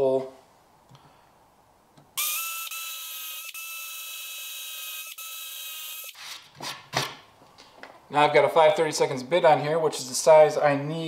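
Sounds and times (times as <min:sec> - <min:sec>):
cordless drill cutting wood: 0:02.2 - 0:06.4.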